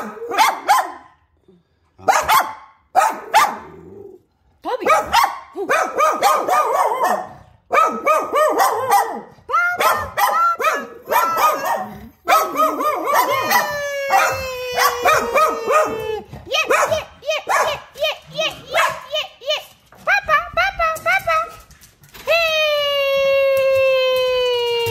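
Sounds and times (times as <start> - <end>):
small dog barking rapidly: 0.3 - 1.0, 2.1 - 3.7, 4.9 - 13.6
dog howling: 11.2 - 16.3.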